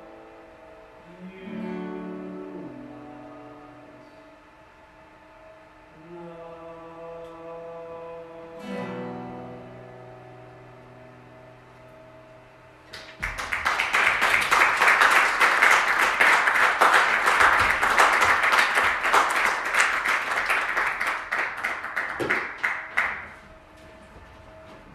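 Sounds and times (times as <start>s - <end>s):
guitar chord ringing: 8.6s - 12.9s
audience applauding: 12.9s - 23.5s.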